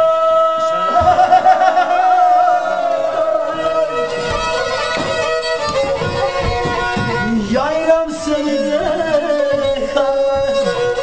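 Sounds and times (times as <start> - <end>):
bowed fiddle folk melody: 0.5 - 11.0.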